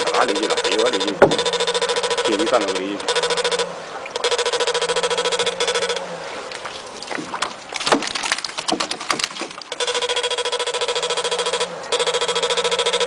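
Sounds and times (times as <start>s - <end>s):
electric fishing shocker buzzing: 0.0s - 6.4s, 9.7s - 13.0s
fish flapping in a boat: 4.2s - 10.9s.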